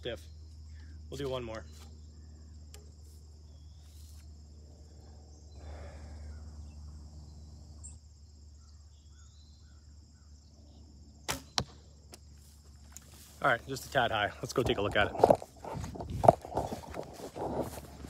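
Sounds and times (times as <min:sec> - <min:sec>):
crickets chirring: 0:00.0 - 0:18.0
rustling noise: 0:03.8 - 0:04.3, 0:12.4 - 0:18.0.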